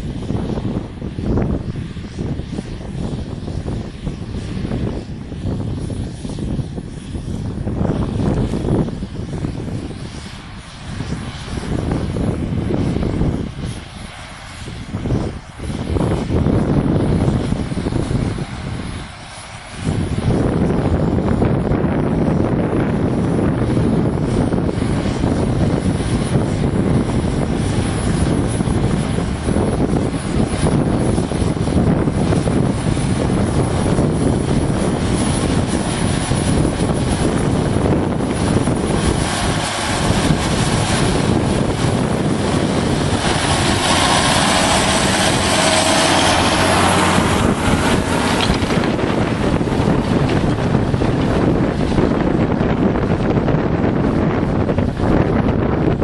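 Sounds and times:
tractor diesel engine running: 15.0 - 56.0
loud rushing noise: 23.2 - 56.0.

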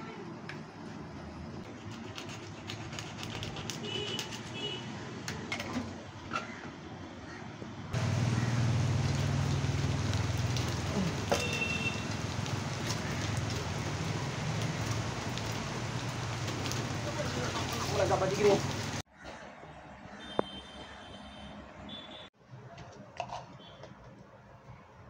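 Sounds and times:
birds chirping: 8.0 - 19.0.

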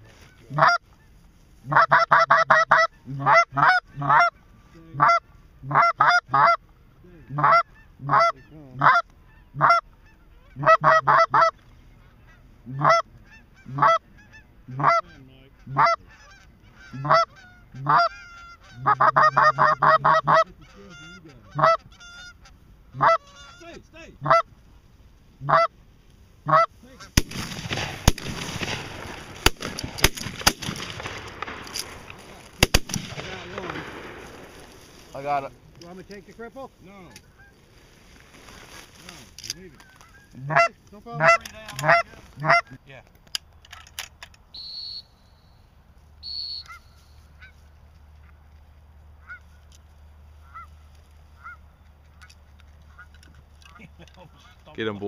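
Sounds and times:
goose honking and clucking: 0.0 - 24.6, 25.4 - 25.8, 26.4 - 27.2, 34.5 - 42.8, 46.2 - 48.4, 49.2 - 54.9
loud rustling with sharp clicks: 27.1 - 36.3.

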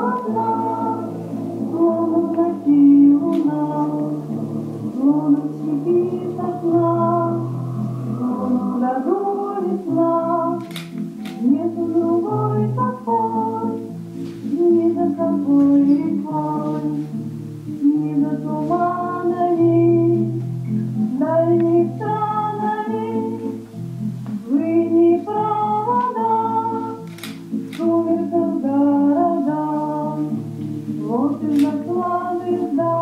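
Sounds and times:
slow song with singing: 0.0 - 33.0
sharp clicks: 10.6 - 11.4, 27.0 - 27.9.

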